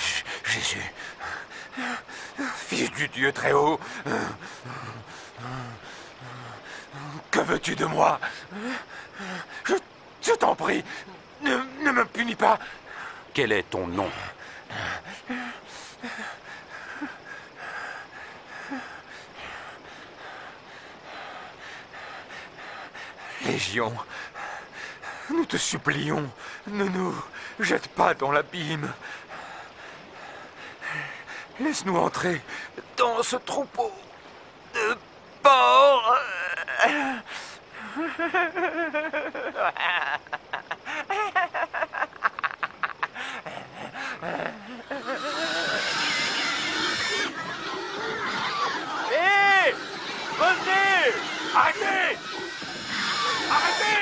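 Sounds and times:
man cackling laughter: 0:37.8 - 0:45.8.

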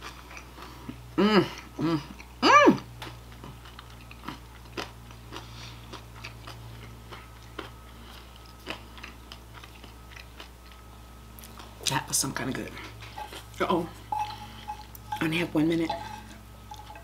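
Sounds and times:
person chewing salad: 0:00.0 - 0:17.0
person humming: 0:01.2 - 0:02.8.

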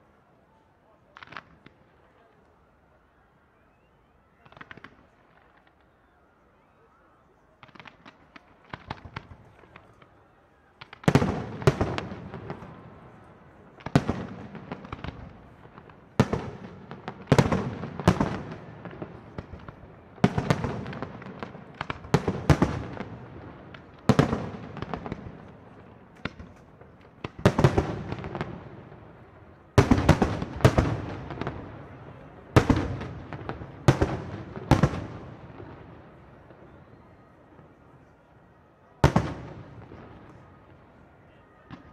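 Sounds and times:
firework crackles and pops: 0:01.1 - 0:02.6, 0:04.3 - 0:06.2, 0:07.4 - 0:38.0.

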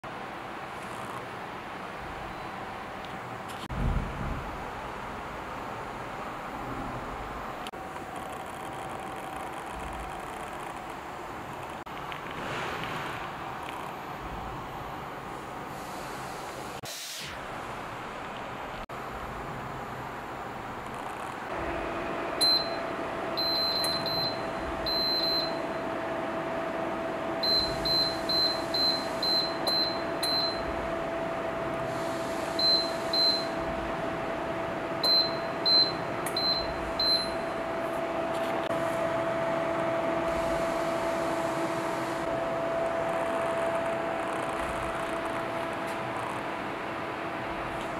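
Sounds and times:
fan heater humming: 0:00.0 - 0:16.8, 0:17.4 - 0:47.9
control panel beeps: 0:22.4 - 0:22.8, 0:23.4 - 0:25.7, 0:27.4 - 0:30.6, 0:32.6 - 0:33.6, 0:35.0 - 0:37.5.

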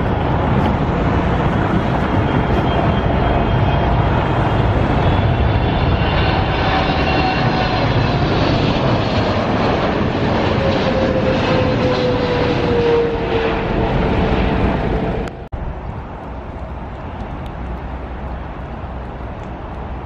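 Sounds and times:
jet airliner passing overhead: 0:00.0 - 0:20.0
outdoor background noise: 0:00.0 - 0:20.0.

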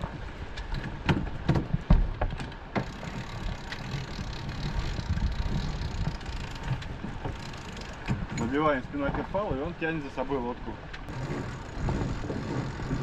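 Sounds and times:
winch clicking: 0:02.4 - 0:08.5
winch cranking low noise: 0:02.6 - 0:08.8, 0:11.0 - 0:13.0.

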